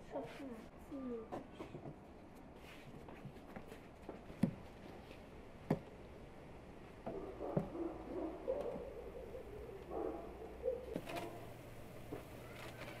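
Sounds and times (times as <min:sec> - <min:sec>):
dove cooing: 0:07.3 - 0:11.6.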